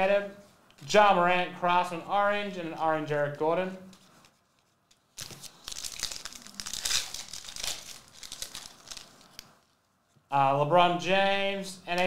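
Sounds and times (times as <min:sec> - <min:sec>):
foil wrapper tearing and crinkling: 0:05.0 - 0:09.5.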